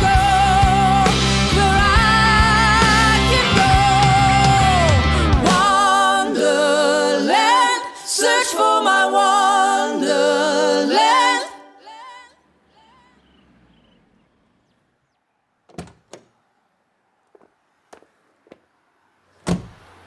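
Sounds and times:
a cappella voices holding chord: 0.0 - 13.4
car door shutting: 15.7 - 16.4, 19.4 - 20.0.

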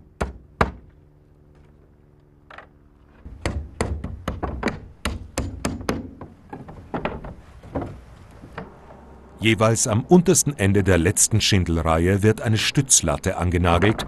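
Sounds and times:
hammer striking nails into wood: 0.2 - 0.8, 3.4 - 6.3.

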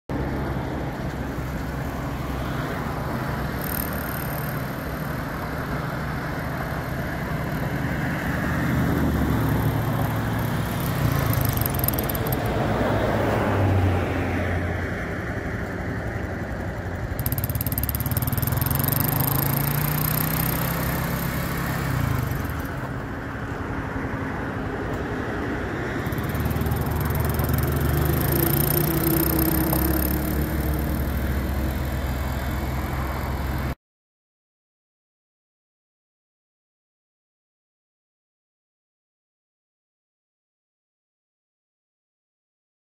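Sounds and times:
atv engine revving: 1.0 - 14.1, 14.7 - 23.2, 25.8 - 33.8.

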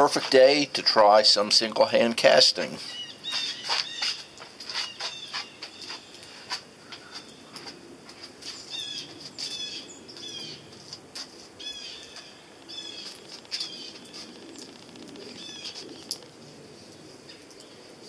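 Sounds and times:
small birds chirping: 2.8 - 10.9, 11.6 - 17.9.

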